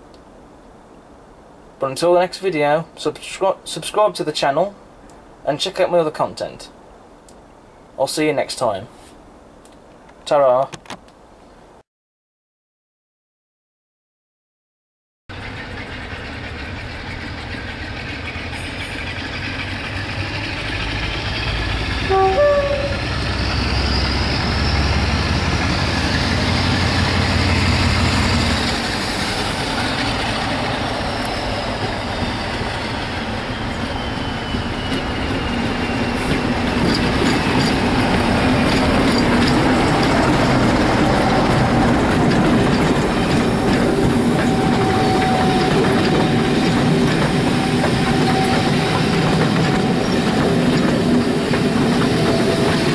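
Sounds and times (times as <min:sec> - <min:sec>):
train passing: 0:15.3 - 0:52.9
wheels clattering on rail joints: 0:15.3 - 0:52.9
train horn blast: 0:21.9 - 0:23.4, 0:44.4 - 0:46.6, 0:47.5 - 0:49.1.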